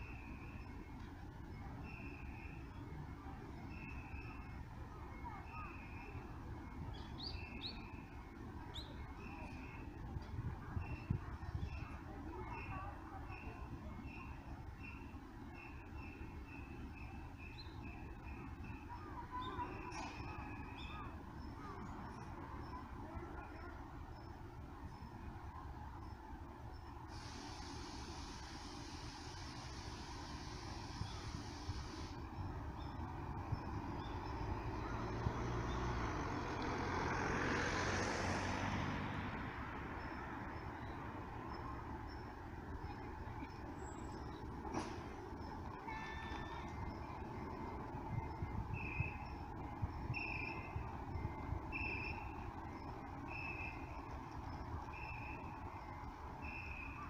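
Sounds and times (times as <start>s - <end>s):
bus engines idling: 0.0s - 57.0s
bird chirps: 5.2s - 10.0s, 10.8s - 22.8s, 45.9s - 54.2s, 54.9s - 57.0s
vehicle driving past: 33.3s - 40.6s.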